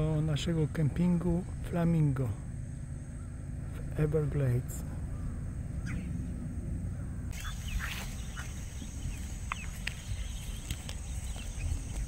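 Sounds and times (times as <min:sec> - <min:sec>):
steady low rumble: 0:00.0 - 0:12.0
birds giving sharp calls: 0:02.5 - 0:12.0.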